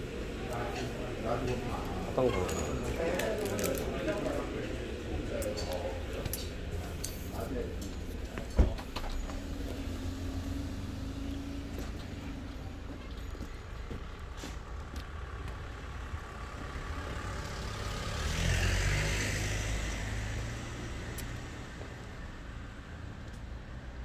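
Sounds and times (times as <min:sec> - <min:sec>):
car engines rumbling: 0:00.0 - 0:24.0
car driving past: 0:16.4 - 0:21.9.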